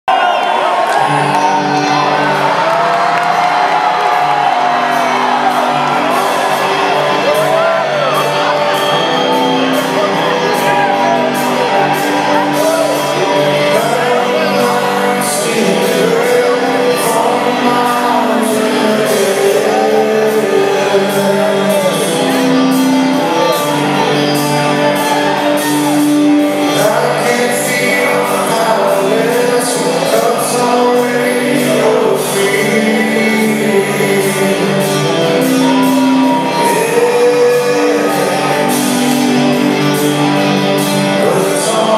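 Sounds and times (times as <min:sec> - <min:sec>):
audience shouting: 0:00.0 - 0:41.9
live rock band: 0:00.1 - 0:41.9
man singing: 0:09.8 - 0:41.9.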